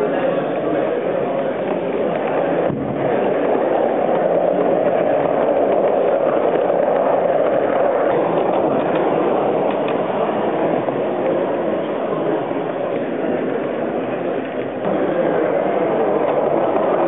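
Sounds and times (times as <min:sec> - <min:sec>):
model train running on track: 0:00.0 - 0:17.0.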